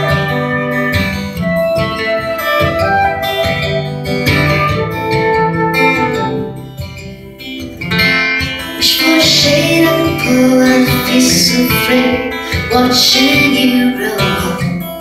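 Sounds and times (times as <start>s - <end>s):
flute long notes: 0.0s - 6.9s
acoustic guitar playing: 0.0s - 15.0s.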